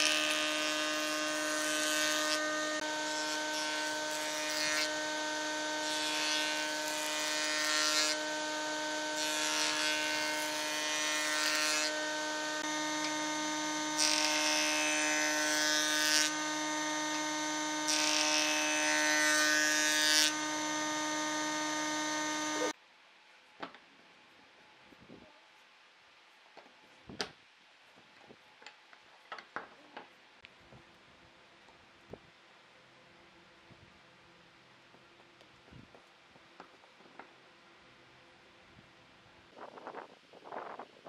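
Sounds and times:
jointer whining: 0.0s - 22.8s
wood cutting hiss: 0.0s - 22.8s.

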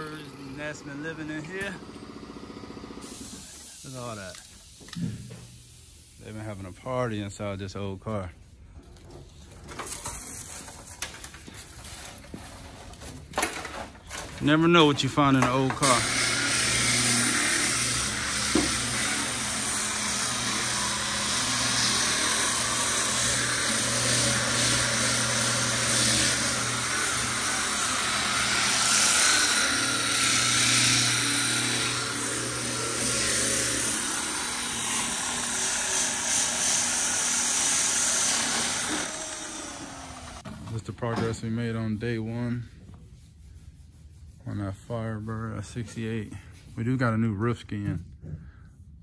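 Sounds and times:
power sander on metal: 0.0s - 4.2s, 14.4s - 40.5s.

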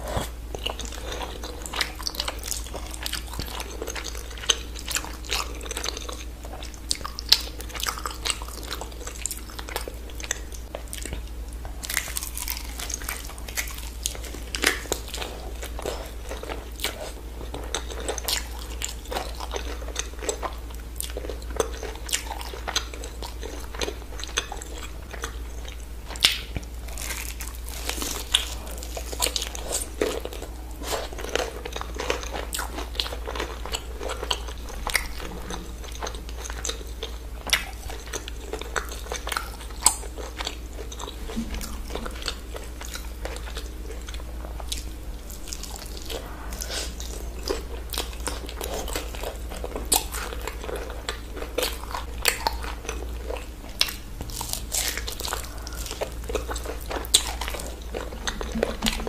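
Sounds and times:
chewing crunchy fried chicken: 0.0s - 59.0s.

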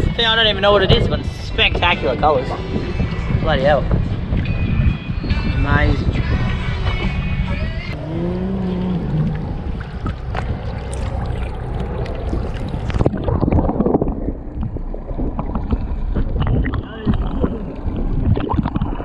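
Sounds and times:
water sloshing: 0.0s - 5.5s, 7.9s - 19.0s
wind on microphone: 0.0s - 19.0s
underwater bubbling: 7.9s - 19.0s
underwater clicks: 8.0s - 19.0s.

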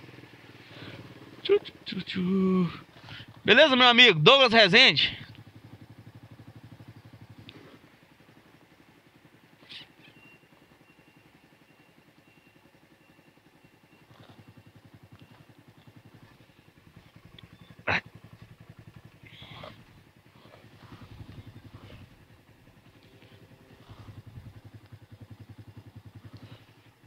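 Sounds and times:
motorcycle engine idling: 0.0s - 27.0s
faint steady high tone: 9.8s - 16.4s.

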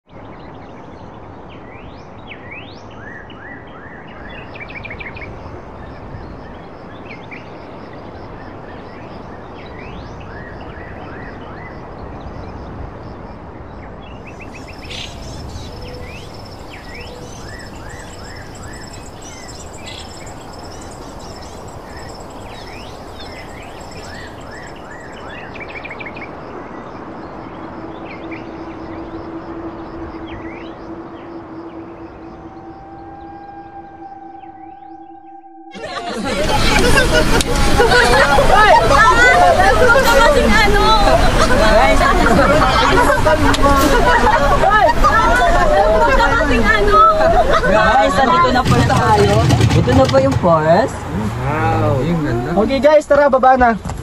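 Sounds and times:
birds chirping: 14.1s - 44.4s
insect-like trill: 14.4s - 37.1s
steady rushing noise: 14.4s - 45.3s.

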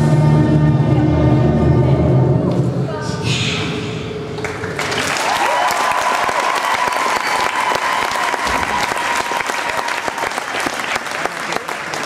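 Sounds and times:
audience applause: 4.4s - 12.0s.

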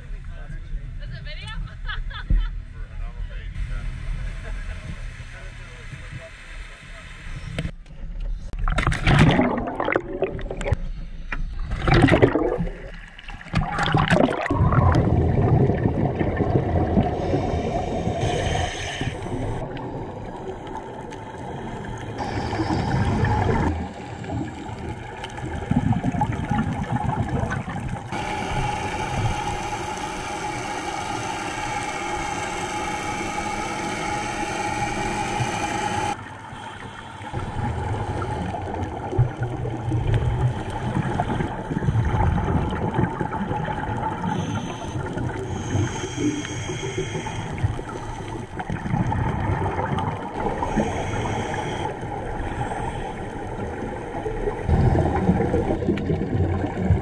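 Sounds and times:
muffled underwater rumbling: 0.0s - 57.0s
steady humming drone: 28.1s - 39.1s.

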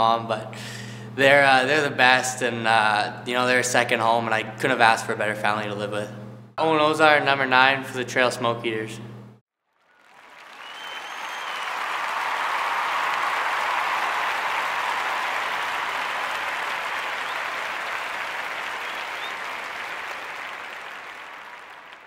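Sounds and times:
crowd applauding: 9.7s - 22.0s.

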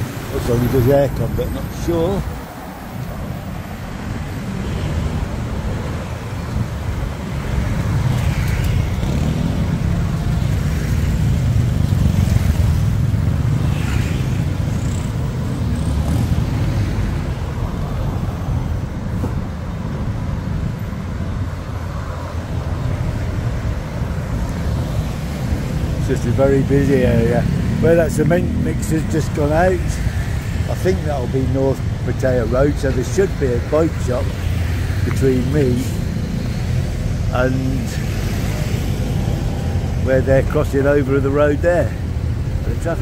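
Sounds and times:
road traffic rumble: 0.0s - 43.0s.

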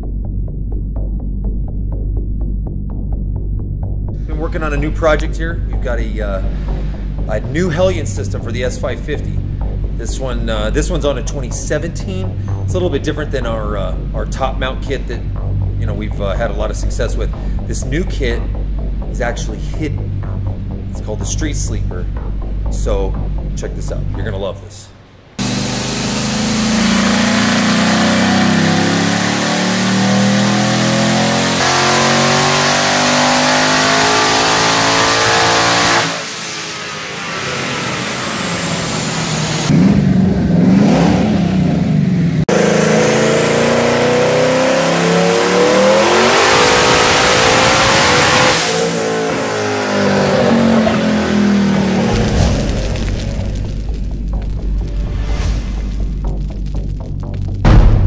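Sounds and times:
car engine revving at full throttle: 25.4s - 56.9s.

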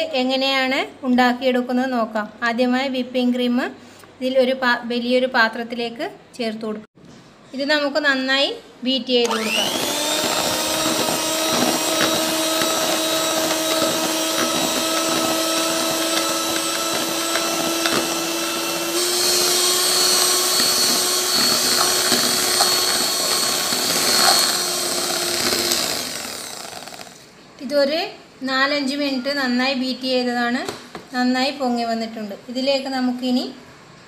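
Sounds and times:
electric hand mixer whirring: 9.2s - 27.2s.

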